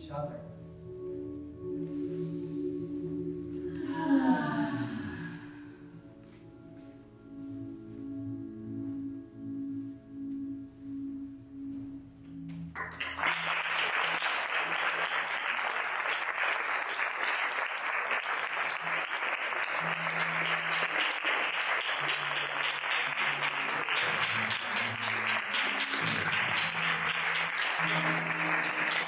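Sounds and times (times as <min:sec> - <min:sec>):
low musical notes: 0:00.0 - 0:13.3, 0:18.3 - 0:29.0
audience applause: 0:12.8 - 0:29.0.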